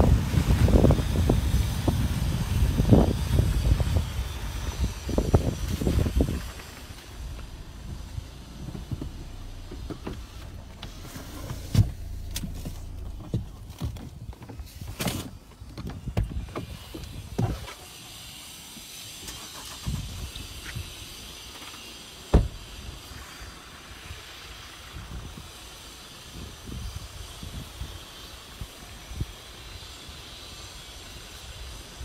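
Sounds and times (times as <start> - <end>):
car rumbling on wet road: 0.0 - 14.8
sharp thumps: 5.2 - 14.2.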